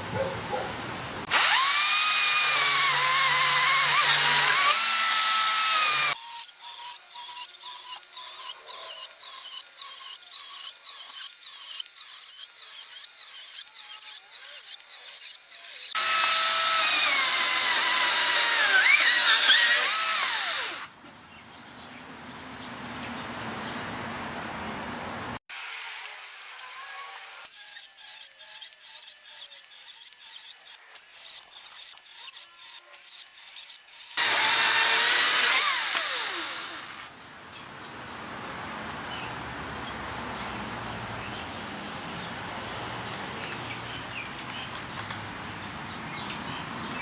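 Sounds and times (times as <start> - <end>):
chainsaw cutting wood: 1.3 - 20.9, 30.1 - 37.1.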